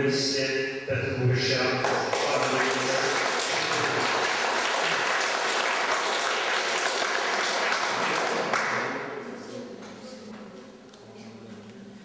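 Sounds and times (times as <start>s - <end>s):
audience applauding: 1.8s - 9.0s.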